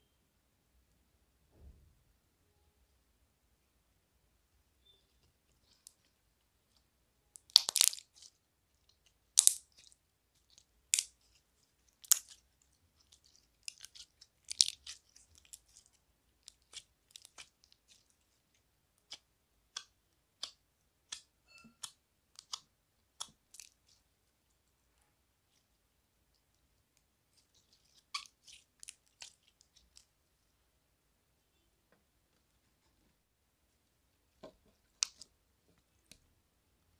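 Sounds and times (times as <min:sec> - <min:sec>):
slime squishing and popping: 0:07.4 - 0:24.0.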